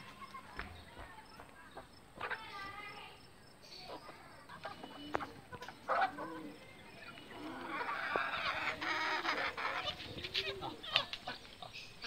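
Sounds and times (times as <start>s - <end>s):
chickens clucking: 1.3s - 2.6s, 3.8s - 12.0s.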